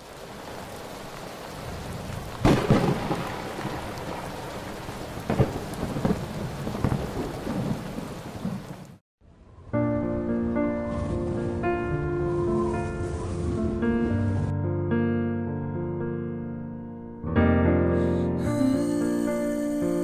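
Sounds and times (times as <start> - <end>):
steady rain: 0.0 - 9.0
thunderclaps: 0.1 - 9.0.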